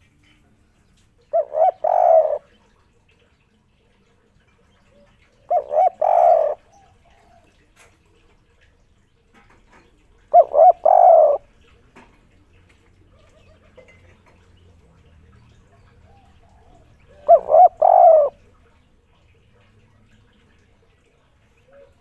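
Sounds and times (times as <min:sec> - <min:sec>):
dove cooing: 0:01.2 - 0:02.7, 0:04.8 - 0:07.6, 0:10.1 - 0:11.8, 0:13.0 - 0:19.3, 0:21.6 - 0:22.0.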